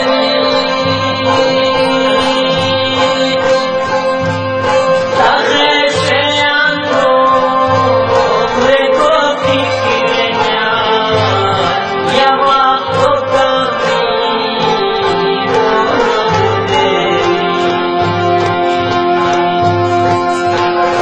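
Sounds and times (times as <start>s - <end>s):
man singing folk song: 0.0s - 4.1s, 4.7s - 19.0s
instrumental accompaniment: 0.0s - 21.0s.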